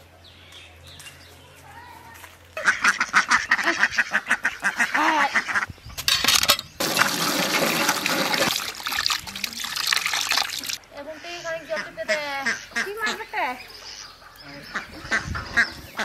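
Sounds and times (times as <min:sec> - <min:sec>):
hand pump working: 0:06.1 - 0:10.8
water splashing into steel bowl: 0:06.3 - 0:10.8.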